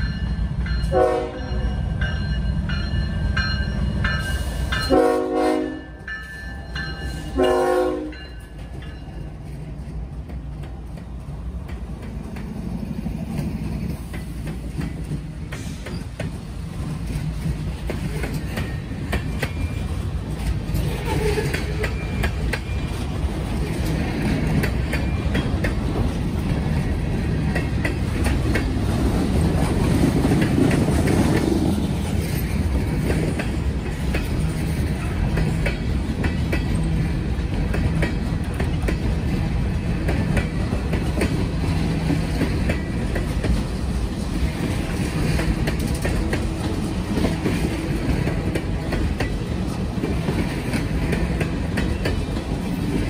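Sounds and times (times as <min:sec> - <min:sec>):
train wheels rumbling on rails: 0:00.0 - 0:53.0
wheels clacking over rail joints: 0:08.2 - 0:53.0.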